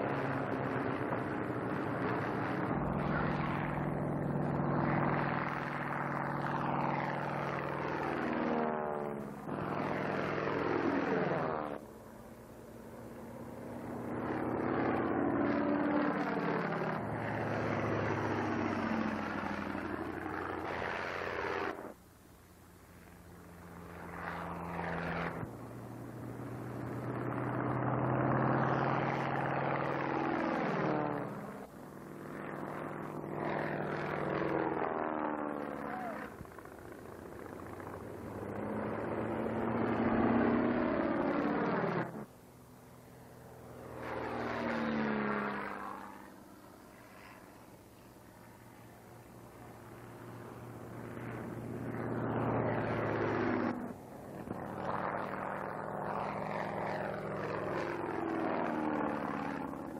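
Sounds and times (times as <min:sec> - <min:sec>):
biplane engine droning by: 0:00.0 - 0:59.9.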